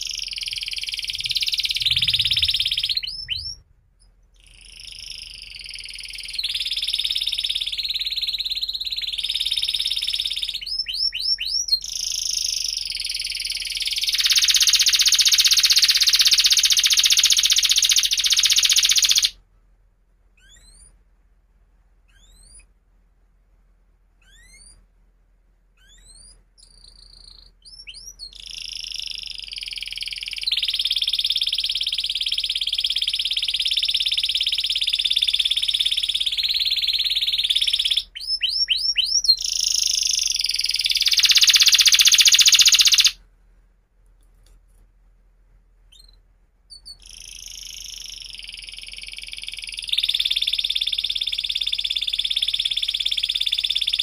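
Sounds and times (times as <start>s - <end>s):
canary singing trills: 0.0s - 19.4s, 20.4s - 21.0s, 22.1s - 22.8s, 24.2s - 24.8s, 25.8s - 43.2s, 45.9s - 54.0s.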